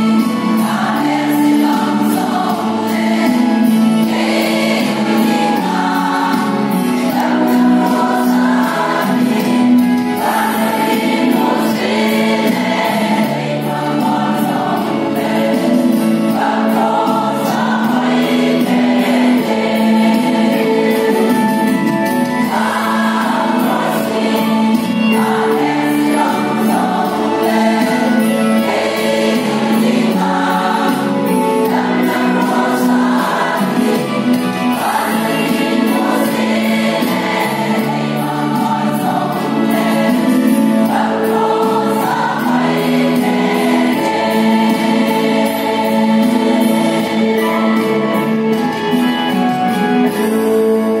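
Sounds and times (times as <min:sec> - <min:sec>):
women's choir singing a hymn: 0:00.0 - 0:51.0.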